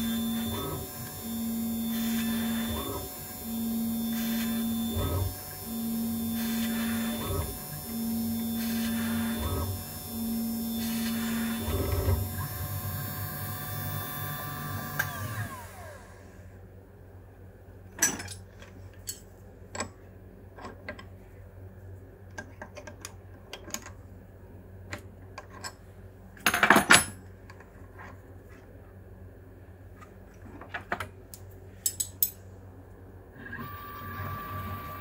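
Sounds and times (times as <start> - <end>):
stepper motors whining: 0.0 - 16.2, 33.4 - 35.0.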